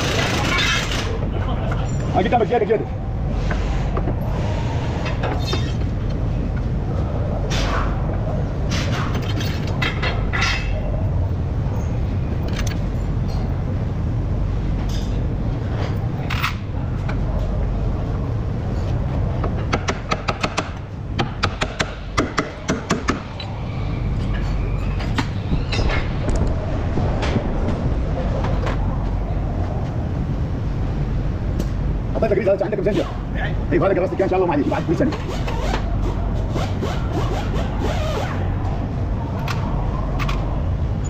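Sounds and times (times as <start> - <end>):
low workshop rumble: 0.0 - 41.0.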